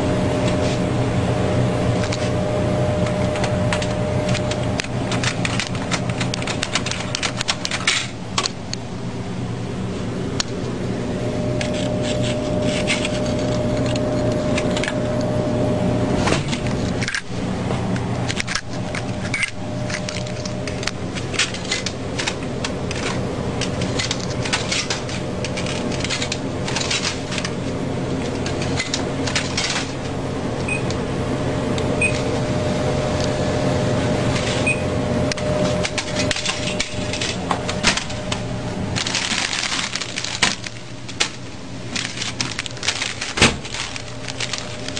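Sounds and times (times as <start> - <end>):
vending machine humming: 0.0 - 44.9.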